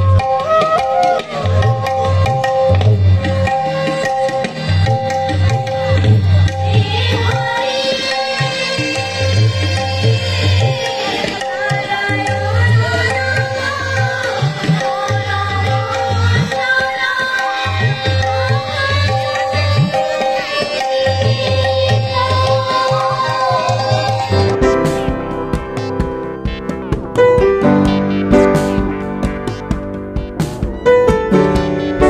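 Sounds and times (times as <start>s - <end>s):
hand drum playing: 0.0s - 7.8s, 19.5s - 32.0s
steady held notes: 18.3s - 32.0s
person singing: 18.9s - 25.1s.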